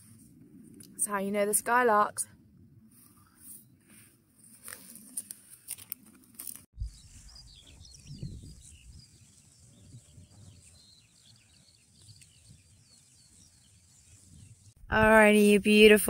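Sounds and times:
skylarks singing: 0:06.8 - 0:14.8
wind rumble on microphone: 0:06.8 - 0:16.0.

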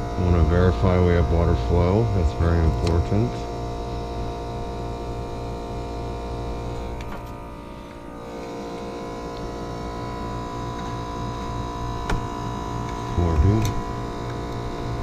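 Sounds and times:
heat pump humming with steady tones: 0:00.0 - 0:15.0.

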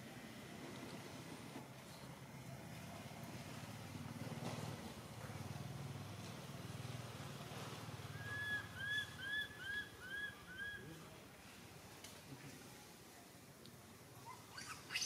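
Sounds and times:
high-pitched animal chirps: 0:14.5 - 0:15.0.

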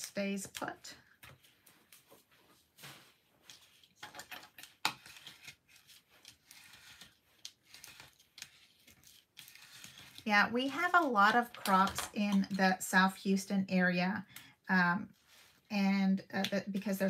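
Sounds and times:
paper rustling and rubbing: 0:01.3 - 0:11.8.

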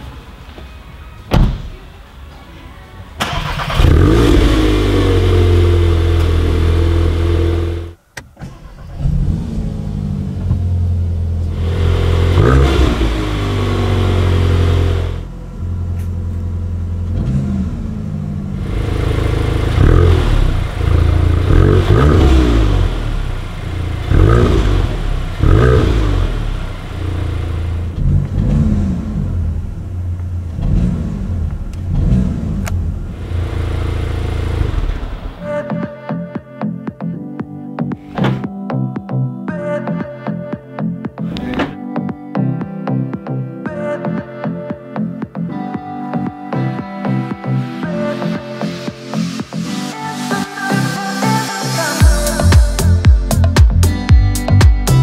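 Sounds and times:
car engine starting and idling: 0:03.1 - 0:35.6
engine revving blips: 0:03.2 - 0:10.1, 0:11.4 - 0:35.5.

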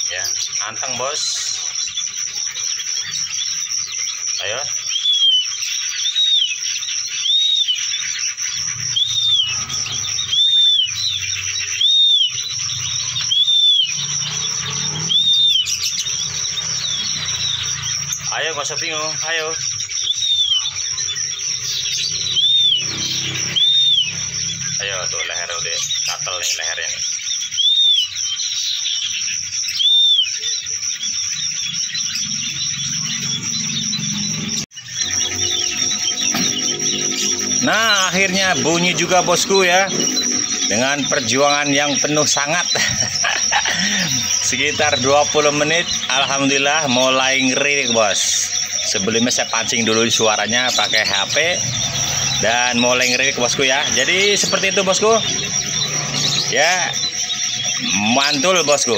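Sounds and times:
bird whistled call: 0:00.0 - 0:58.9
songbird twittering: 0:00.0 - 0:58.9
high-pitched drone: 0:07.1 - 0:27.0, 0:31.7 - 0:58.9
steady high-pitched tone: 0:32.2 - 0:58.9.

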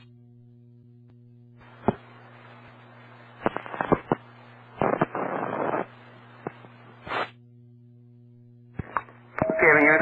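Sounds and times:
faint hum: 0:00.0 - 0:10.0
radio clicks and crackles: 0:01.6 - 0:07.0, 0:08.7 - 0:10.0
radio static hiss: 0:01.6 - 0:07.4, 0:08.8 - 0:10.0
loud rush of radio noise: 0:04.8 - 0:05.9.

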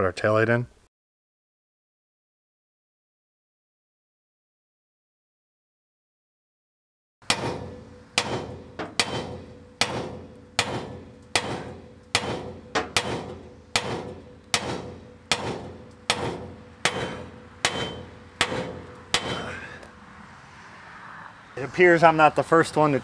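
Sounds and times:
hammer striking metal: 0:07.2 - 0:19.9.

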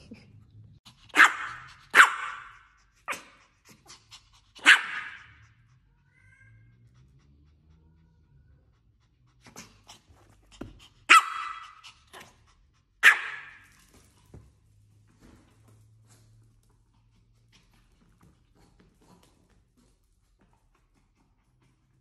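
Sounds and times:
small dog barking: 0:01.1 - 0:03.4, 0:04.6 - 0:05.6, 0:11.0 - 0:12.3, 0:13.0 - 0:13.7.

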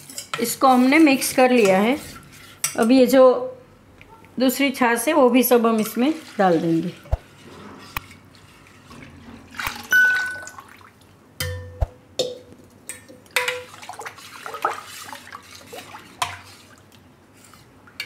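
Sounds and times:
buttermilk pouring and splashing: 0:13.6 - 0:17.0
batter sloshing: 0:13.7 - 0:17.6.

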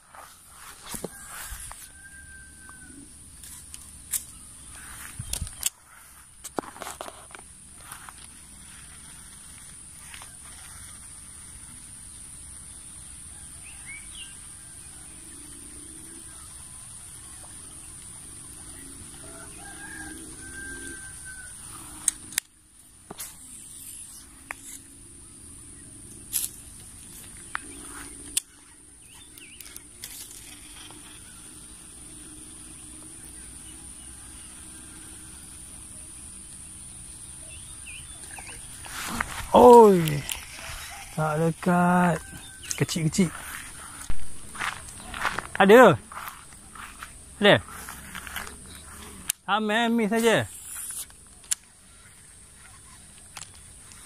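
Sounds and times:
rooster crowing: 0:00.6 - 0:03.2, 0:18.6 - 0:22.1, 0:33.7 - 0:36.0, 0:38.8 - 0:45.5.

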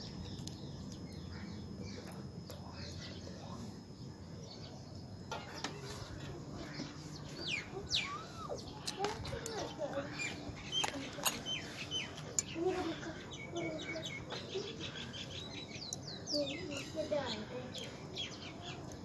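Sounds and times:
birds chirping: 0:00.0 - 0:19.0
low background noise: 0:00.0 - 0:19.0.

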